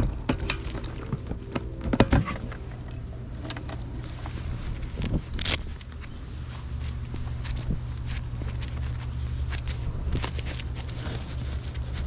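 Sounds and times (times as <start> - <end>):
keys jangling: 0.0 - 5.6.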